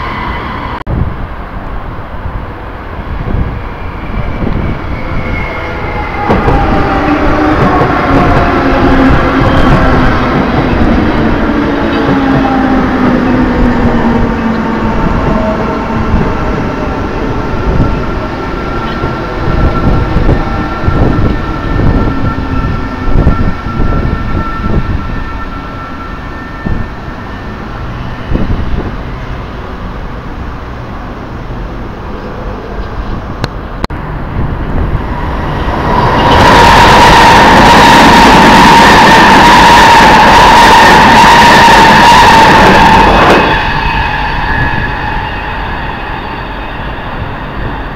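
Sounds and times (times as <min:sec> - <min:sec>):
fast train rushing past: 0:00.0 - 0:47.9.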